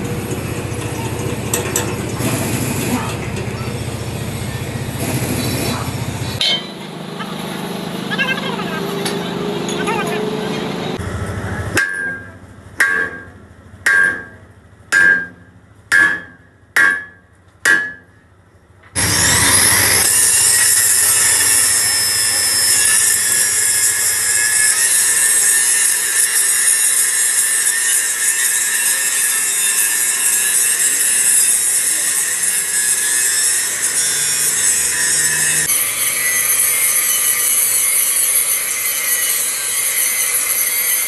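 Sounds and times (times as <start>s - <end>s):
sharp metal strikes: 6.4s - 6.9s, 11.8s - 18.2s
angle grinder grinding steel: 19.0s - 41.0s.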